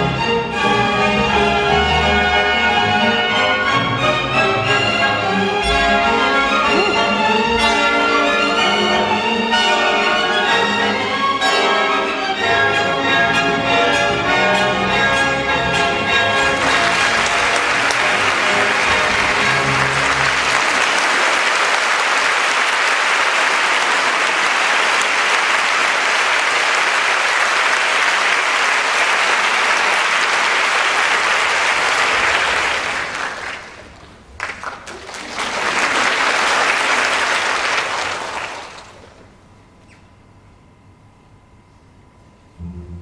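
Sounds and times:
held orchestral chord: 0.0s - 33.8s, 42.4s - 43.0s
audience applauding: 5.6s - 8.4s, 16.2s - 39.4s.

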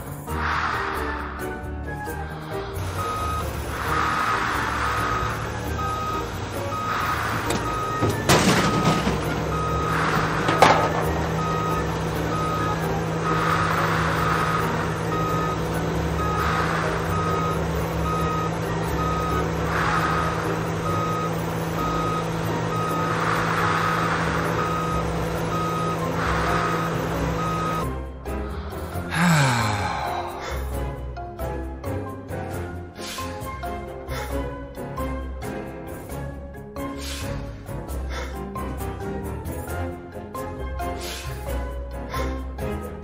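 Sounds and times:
truck engine running: 0.0s - 43.0s
reversing alarm beeping: 2.8s - 27.9s.

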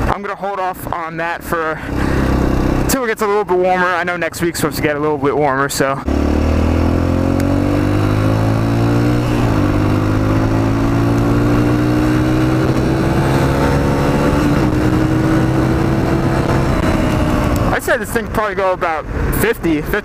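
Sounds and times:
dirt bike engine pulling hard: 0.7s - 3.7s, 6.0s - 18.2s.

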